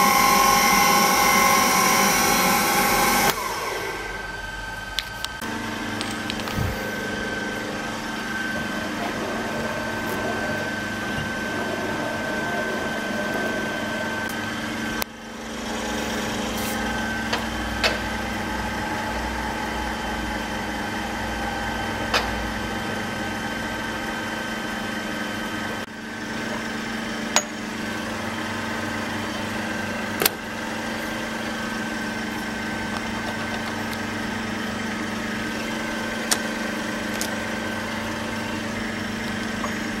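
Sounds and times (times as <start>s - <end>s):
grinder machine hum and whine: 0.0s - 40.0s.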